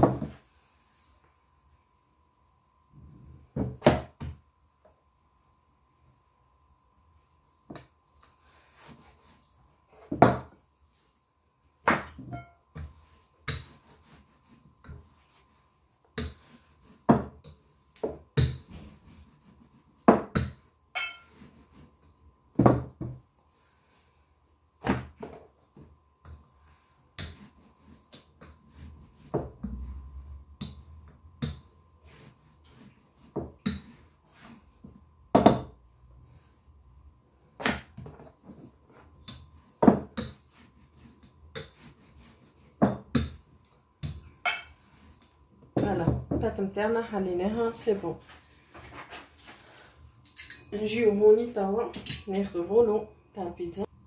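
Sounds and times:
rolling pin knocking on counter: 10.1 - 10.5, 17.1 - 17.4, 20.0 - 20.6, 22.6 - 23.2, 35.3 - 35.7, 39.8 - 40.4, 42.8 - 43.4.

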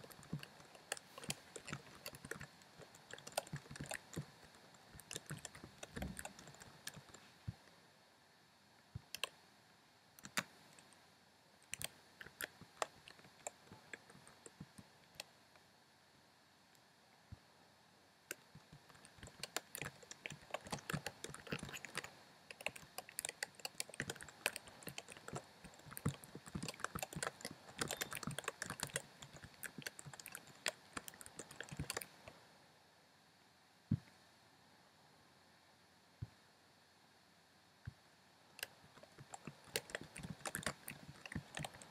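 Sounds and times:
computer keyboard typing: 0.0 - 7.3, 9.1 - 9.3, 10.2 - 10.9, 11.6 - 15.3, 18.3 - 32.4, 38.6 - 41.9.

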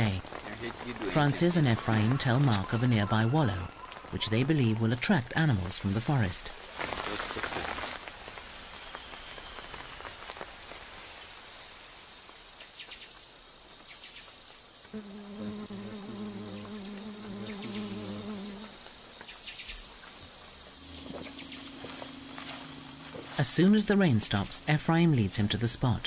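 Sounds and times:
insects buzzing: 6.5 - 26.0
frog calling: 20.8 - 26.0.

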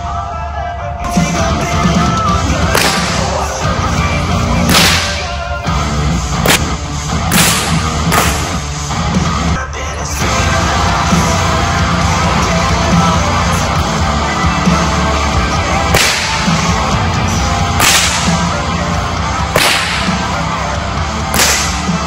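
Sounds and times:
loud rock music: 0.0 - 22.0
whip cracking: 2.7 - 3.4, 4.7 - 5.4, 6.4 - 8.6, 15.9 - 16.7, 17.8 - 18.4, 19.5 - 20.3, 21.3 - 22.0.

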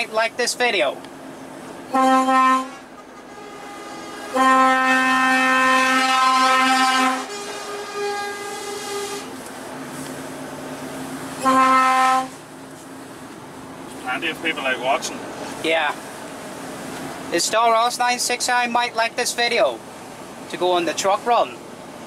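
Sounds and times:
fainter lower horn notes: 1.9 - 9.4, 11.4 - 12.4
lorry air horn blasts: 1.9 - 9.4, 11.4 - 12.4.

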